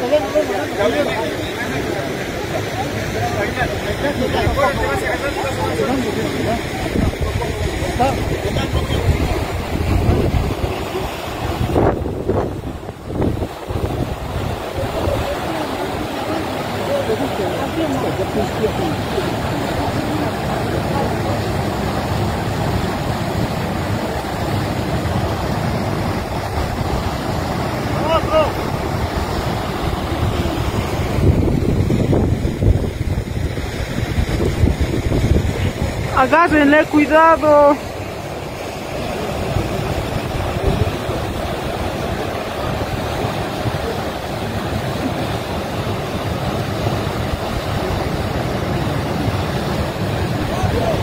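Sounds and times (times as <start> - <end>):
flooded river rushing: 0.0 - 51.0.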